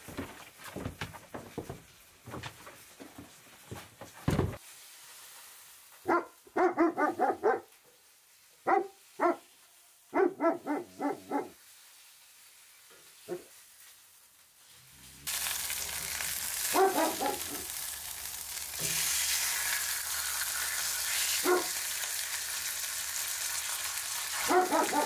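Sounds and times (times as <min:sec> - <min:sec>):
dog barking: 0:06.0 - 0:07.7, 0:08.6 - 0:09.5, 0:10.1 - 0:11.6, 0:13.3 - 0:13.5, 0:16.7 - 0:17.7, 0:21.4 - 0:21.8, 0:24.4 - 0:25.0.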